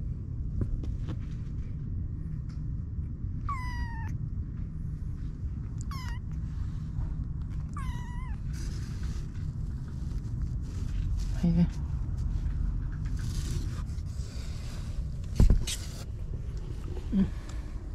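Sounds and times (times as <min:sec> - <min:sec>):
steady low rumble: 0:00.0 - 0:17.9
kittens mewing: 0:03.5 - 0:04.2, 0:05.8 - 0:06.4, 0:07.5 - 0:08.6.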